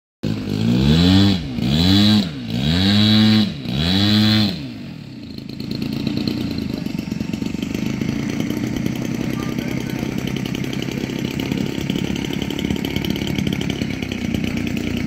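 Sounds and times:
model plane engine revving: 0:00.2 - 0:15.0.

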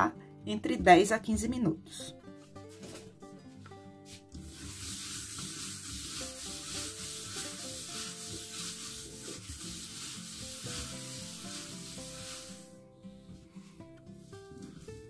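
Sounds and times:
soft background music: 0:00.0 - 0:15.0
hand rubbing countertop: 0:04.1 - 0:12.8, 0:13.4 - 0:15.0.

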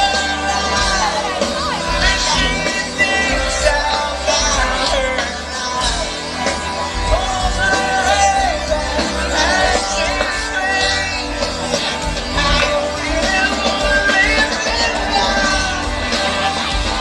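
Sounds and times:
bass: 0:00.0 - 0:17.0
guitars: 0:00.0 - 0:17.0
melodic lead line: 0:00.0 - 0:17.0.

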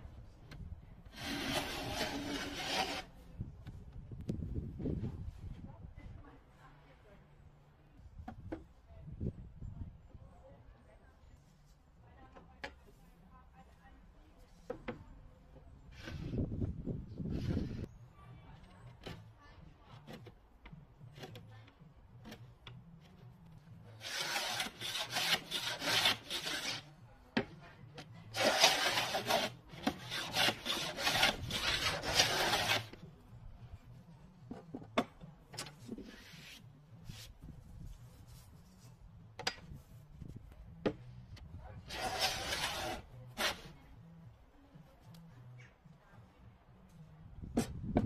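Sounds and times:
hand plane rasping on wood: 0:01.2 - 0:03.1, 0:24.0 - 0:26.9, 0:28.3 - 0:33.0, 0:41.9 - 0:43.7.

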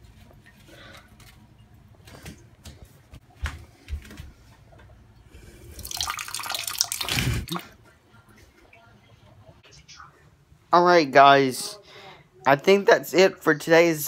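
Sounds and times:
liquid splashing into toilet bowl: 0:05.7 - 0:07.8.

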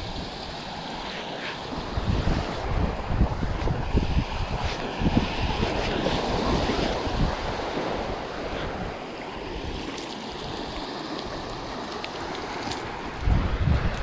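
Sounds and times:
surf washing on sandy beach: 0:00.0 - 0:14.0
wind buffeting microphone: 0:00.0 - 0:14.0.

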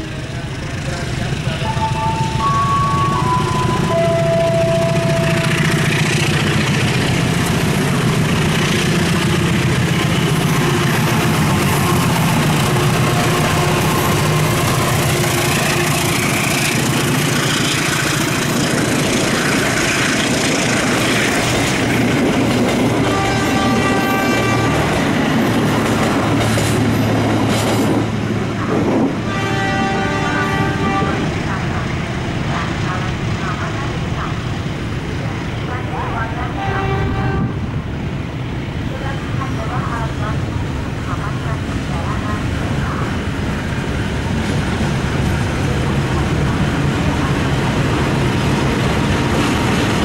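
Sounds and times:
diesel engine hum: 0:00.0 - 0:29.0
wheels rushing on rails: 0:00.0 - 0:50.0
high steady tone: 0:01.2 - 0:06.4.

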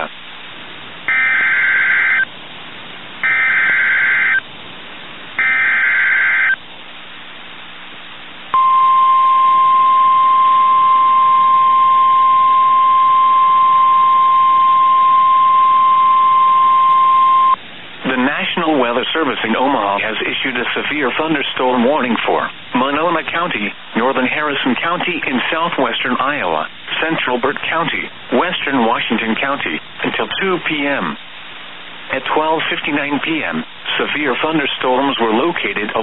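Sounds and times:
buzzy data tone bursts: 0:01.1 - 0:02.3, 0:03.2 - 0:04.4, 0:05.4 - 0:06.6
high warning alarm tone: 0:01.1 - 0:02.3, 0:03.2 - 0:04.4, 0:05.4 - 0:06.6, 0:08.6 - 0:17.6.

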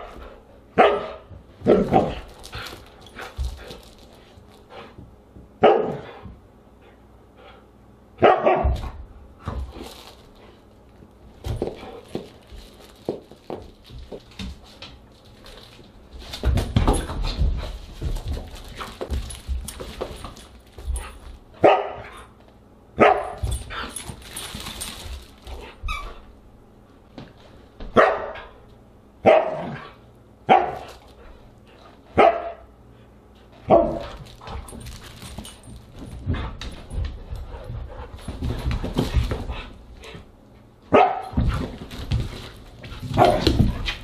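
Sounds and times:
dog barking: 0:00.8 - 0:01.2, 0:05.6 - 0:06.0, 0:08.2 - 0:08.8, 0:21.6 - 0:22.1, 0:23.0 - 0:23.4, 0:28.0 - 0:28.4, 0:29.2 - 0:29.8, 0:30.5 - 0:30.8, 0:32.2 - 0:32.7, 0:40.9 - 0:41.3
paws scuffling on rug: 0:01.7 - 0:05.2, 0:08.8 - 0:22.2, 0:23.3 - 0:26.4, 0:33.4 - 0:40.6, 0:41.3 - 0:44.0.

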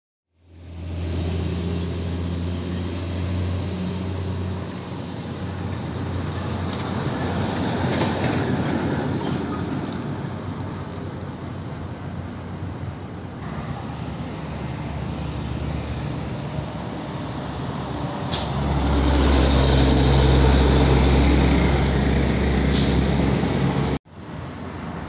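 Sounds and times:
diesel truck driving away: 0:00.5 - 0:24.0
concrete mixer truck engine: 0:15.9 - 0:24.0.

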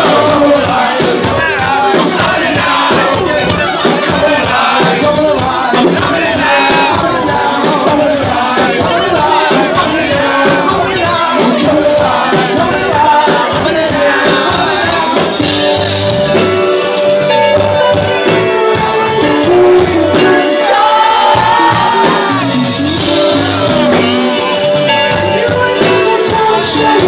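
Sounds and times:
man singing: 0:00.0 - 0:16.2, 0:18.3 - 0:27.0
live rock band playing: 0:00.0 - 0:27.0.

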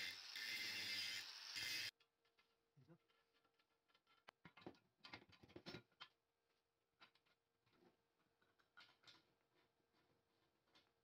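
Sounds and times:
angle grinder on steel: 0:00.0 - 0:01.9.

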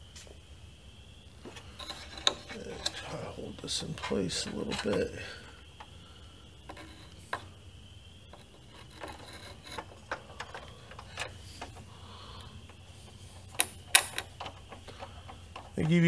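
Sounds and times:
screwdriver clicking and scraping: 0:01.8 - 0:03.2, 0:04.0 - 0:05.9, 0:06.7 - 0:07.5, 0:08.3 - 0:11.8.

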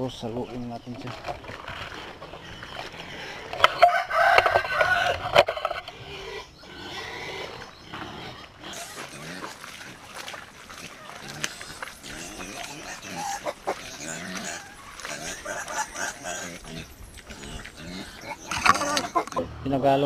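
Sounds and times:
rooster crowing: 0:03.6 - 0:05.4.

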